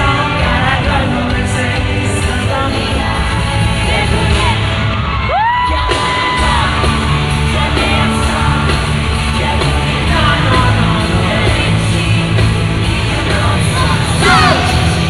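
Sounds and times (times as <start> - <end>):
crowd screaming and yelling: 0.0 - 15.0
loud live concert music: 0.0 - 15.0.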